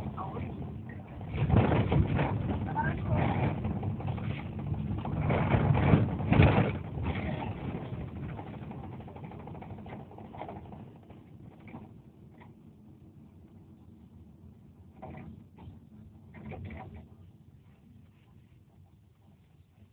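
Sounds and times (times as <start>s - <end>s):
vehicle road and engine noise: 0.0s - 18.0s.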